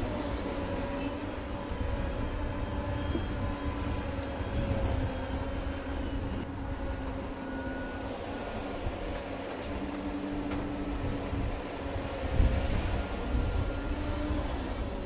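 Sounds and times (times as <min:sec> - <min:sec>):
heavy engine rumbling: 0:00.0 - 0:15.0.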